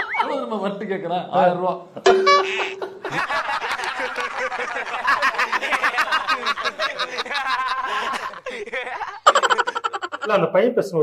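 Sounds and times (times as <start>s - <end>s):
steady tone: 2.1s - 3.2s
men laughing: 2.2s - 10.4s.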